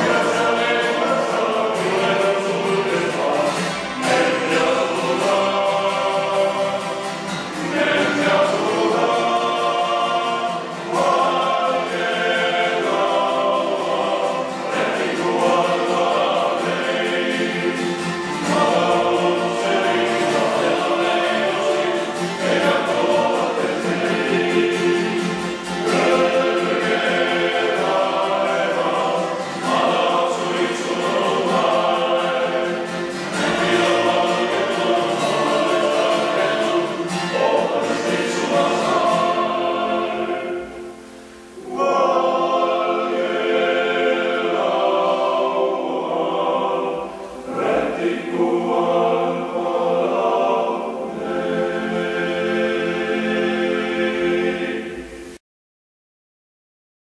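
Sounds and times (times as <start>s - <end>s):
acoustic guitar: 0.0s - 55.4s
men's choir singing: 0.0s - 55.4s.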